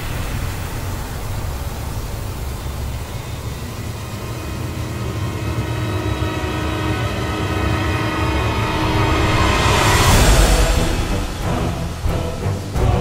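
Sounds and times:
rotating steel drum rumbling: 0:00.0 - 0:13.0.

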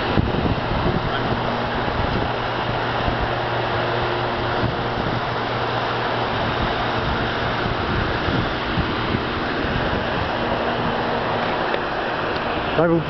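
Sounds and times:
police car idling: 0:00.0 - 0:13.0
wind on microphone: 0:00.0 - 0:13.0.

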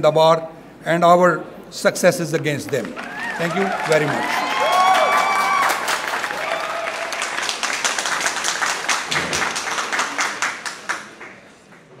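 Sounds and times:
audience applauding: 0:02.7 - 0:11.9.

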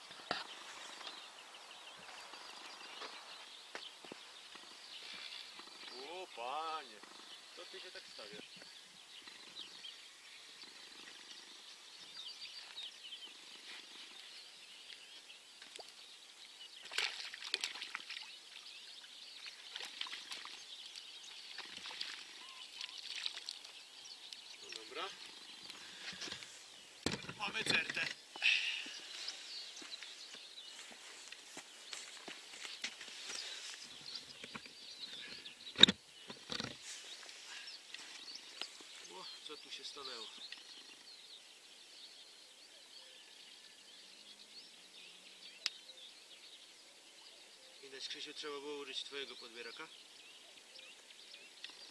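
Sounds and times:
small birds chirping: 0:00.0 - 0:51.9.

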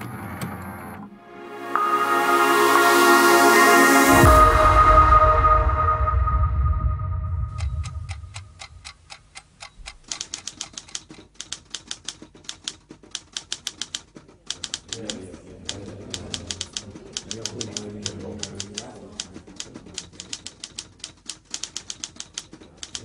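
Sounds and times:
electronic music: 0:01.1 - 0:08.6
typewriter keystrokes: 0:09.8 - 0:23.0.

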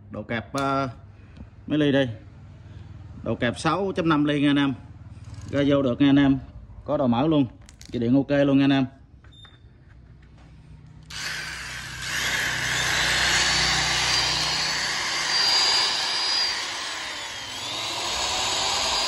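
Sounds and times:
die grinder whining: 0:11.1 - 0:19.0.

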